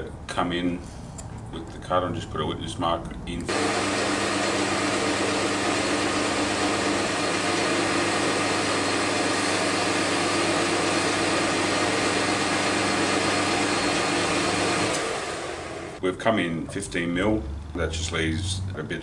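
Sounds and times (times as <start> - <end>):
metal lathe running: 3.5 - 16.0.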